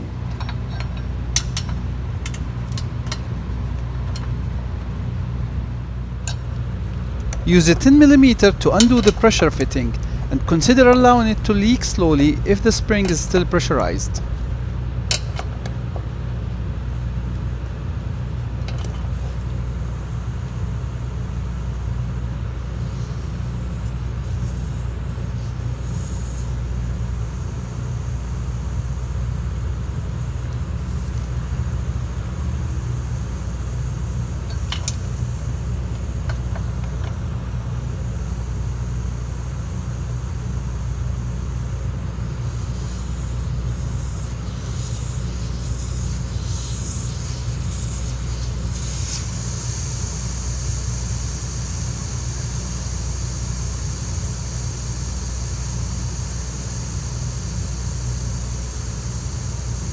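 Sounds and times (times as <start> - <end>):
steady low hum: 0.0 - 59.9
compressed air hissing: 7.6 - 14.5, 22.7 - 27.9, 42.3 - 55.6.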